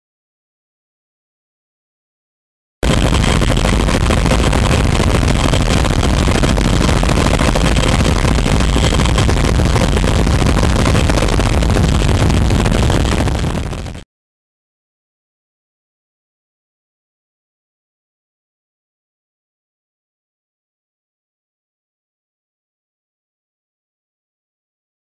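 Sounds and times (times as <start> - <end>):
faint high whine: 2.8 - 14.0
helicopter engines and rotors: 2.8 - 14.0.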